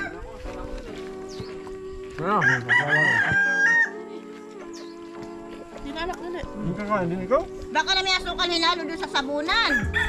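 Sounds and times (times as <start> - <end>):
rooster crowing: 2.4 - 4.0, 9.6 - 10.0.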